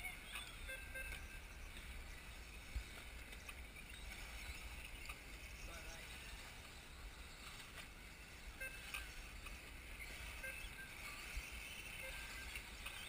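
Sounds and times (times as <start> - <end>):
faint outdoor background: 0.0 - 13.0.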